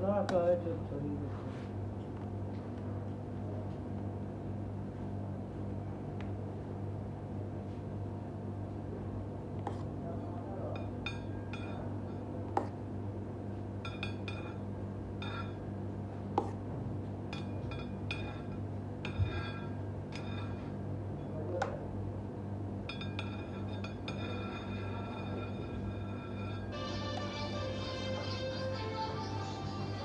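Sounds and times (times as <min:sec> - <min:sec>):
steady low hum: 0:00.0 - 0:30.0
palette knife smoothing cream: 0:09.6 - 0:09.9
knife clinking on metal turntable: 0:22.9 - 0:26.7.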